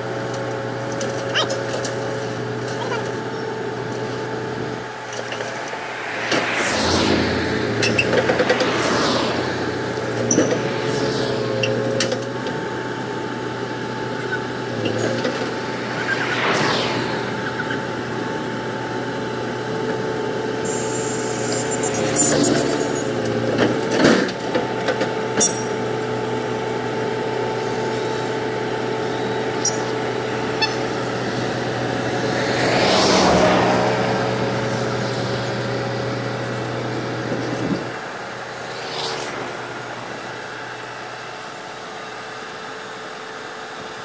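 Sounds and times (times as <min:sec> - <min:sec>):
excavator diesel engine running: 0:00.0 - 0:44.0
hiss: 0:20.6 - 0:23.0.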